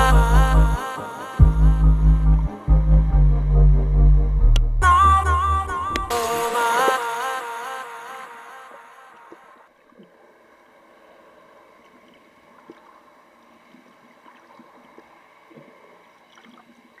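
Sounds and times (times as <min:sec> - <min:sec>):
low underwater wash: 0:00.0 - 0:06.9, 0:08.8 - 0:17.0
background music: 0:00.0 - 0:07.8
small underwater clicks and crackles: 0:09.7 - 0:17.0.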